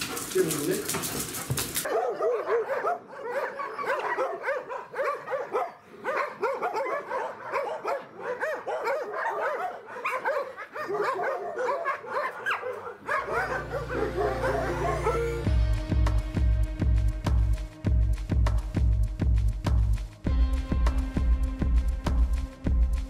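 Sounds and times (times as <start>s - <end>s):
dogs whining and yipping: 1.2s - 5.7s, 6.4s - 15.5s
music: 13.2s - 23.0s.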